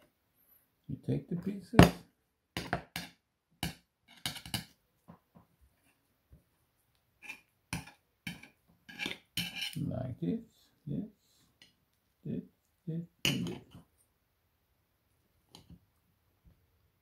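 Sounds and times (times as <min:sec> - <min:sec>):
cutlery clicking and scraping on plate: 0:02.6 - 0:04.8, 0:07.2 - 0:09.8.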